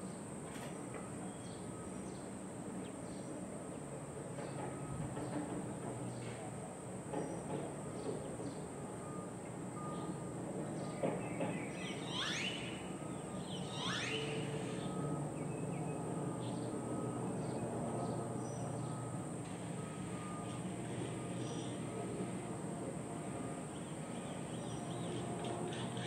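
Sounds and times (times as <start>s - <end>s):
distant traffic hum: 0.0s - 26.0s
high-pitched insect drone: 11.9s - 15.4s.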